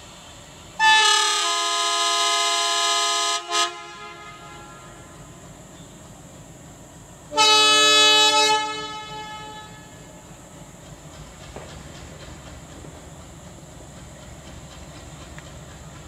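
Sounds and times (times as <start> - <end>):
locomotive air horn blasts: 0.8 - 5.3, 7.3 - 10.2.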